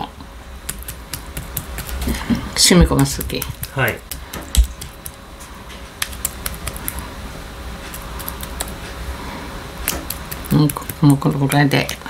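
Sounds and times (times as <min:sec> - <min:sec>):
low steady hum: 0:00.0 - 0:12.0
clicks and taps of food preparation: 0:00.7 - 0:07.0, 0:09.8 - 0:12.0.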